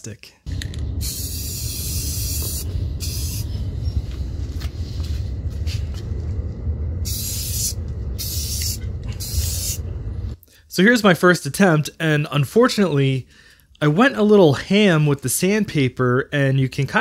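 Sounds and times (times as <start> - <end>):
low rumble: 0.5 - 10.4
spray paint can hissing: 0.6 - 3.6, 7.0 - 9.8.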